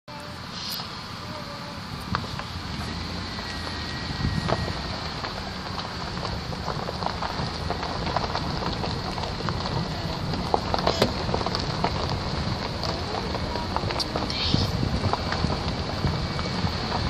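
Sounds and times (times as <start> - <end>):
wind rumbling on microphone: 0.1 - 17.0
small crackles and clicks: 4.4 - 17.0.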